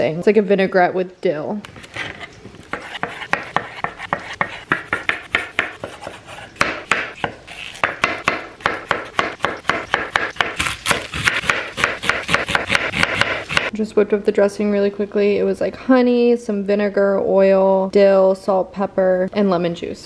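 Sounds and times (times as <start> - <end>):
knife chopping on wooden board: 2.7 - 13.7.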